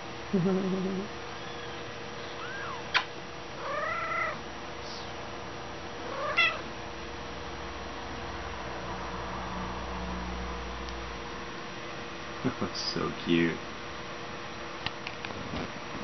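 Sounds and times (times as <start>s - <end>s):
kittens mewing: 2.3s - 4.4s, 6.0s - 6.7s.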